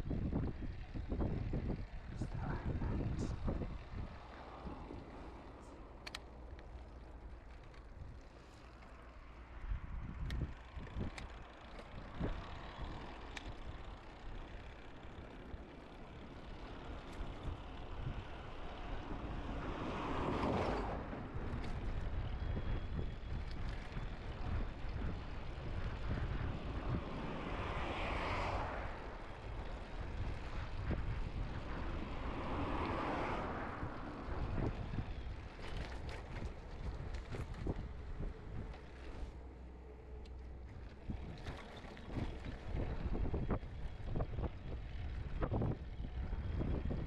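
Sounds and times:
wind on microphone: 0.0 - 5.5, 17.2 - 39.3, 40.9 - 47.0
low rumble while cycling: 0.0 - 47.0
vehicles passing: 0.0 - 47.0.

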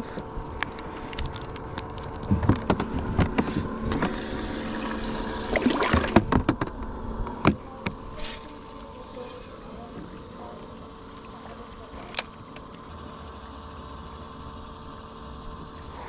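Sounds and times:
motor hum: 0.0 - 16.0
water splashing: 4.3 - 6.3.

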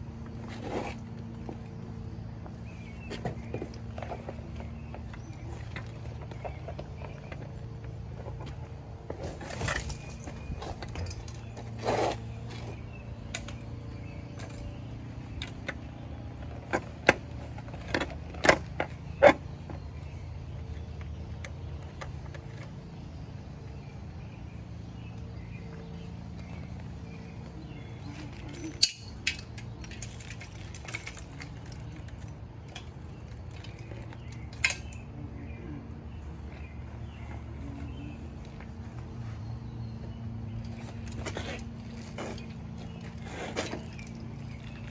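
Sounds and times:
metallic clinks and rattles: 9.1 - 12.1, 28.2 - 35.1.

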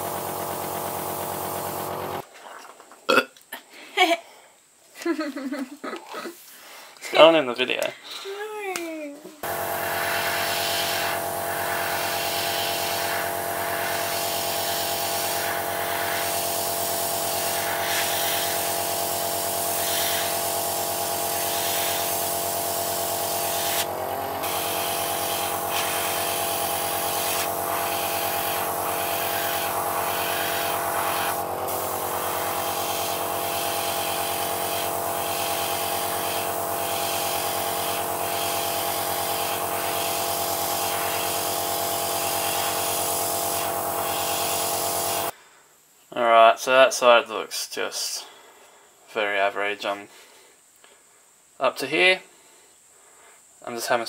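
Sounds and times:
compressor humming: 0.0 - 2.2, 9.4 - 45.3
airbrush hissing sprays: 9.4 - 45.3.

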